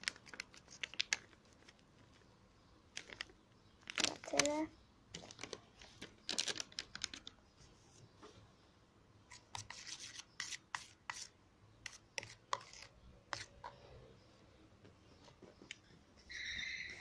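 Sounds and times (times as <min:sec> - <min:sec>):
spoon scraping plastic tub: 0:09.3 - 0:13.8.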